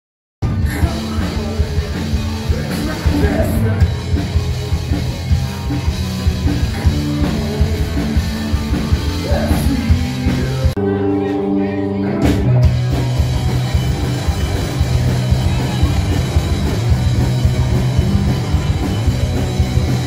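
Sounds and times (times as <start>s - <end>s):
person singing: 0.4s - 5.8s, 6.8s - 12.8s
rock band playing live: 0.4s - 20.0s.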